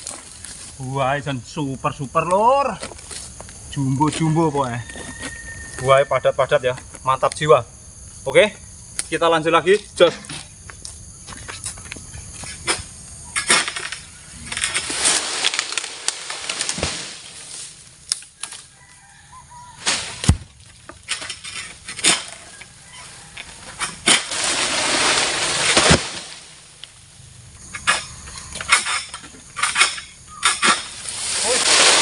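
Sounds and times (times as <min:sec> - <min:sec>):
fronds rustling through leaves: 0:00.0 - 0:00.9, 0:13.8 - 0:27.7, 0:30.6 - 0:32.0
blade cracking through stalks: 0:14.5 - 0:18.6, 0:24.0 - 0:26.9, 0:30.5 - 0:32.0.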